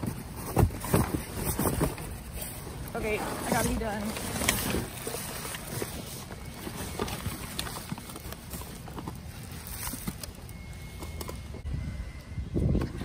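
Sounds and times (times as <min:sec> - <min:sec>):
cardboard boxes and trash shifting: 0:00.0 - 0:11.6.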